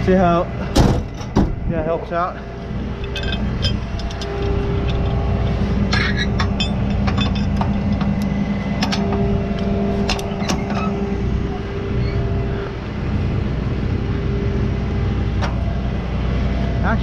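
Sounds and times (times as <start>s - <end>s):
truck engine running: 0.0s - 17.0s
metal shackle clinking: 2.8s - 11.1s.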